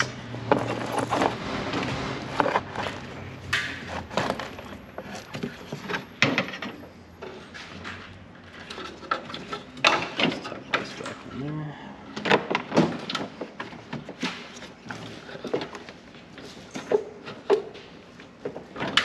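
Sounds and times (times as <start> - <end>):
hands clicking and knocking parts: 0.0 - 8.0, 12.1 - 19.0.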